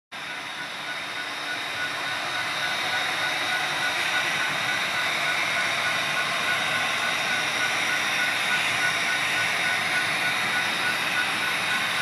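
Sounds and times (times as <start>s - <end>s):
faint pulsing tone: 0.2s - 12.0s
model trains running: 0.2s - 12.0s.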